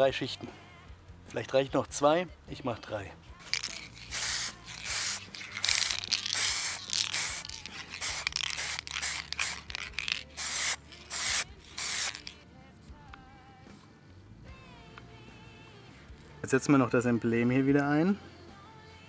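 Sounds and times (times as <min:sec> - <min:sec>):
aerosol spray can hissing: 0:03.4 - 0:12.4.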